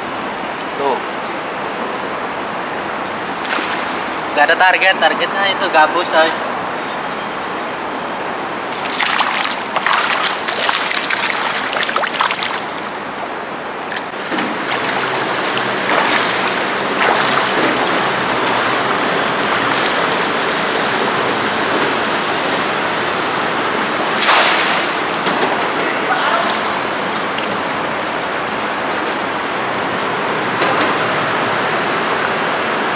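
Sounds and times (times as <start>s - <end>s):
river water flowing: 0.0s - 32.9s
feet wading and splashing: 3.2s - 4.4s, 7.4s - 29.0s.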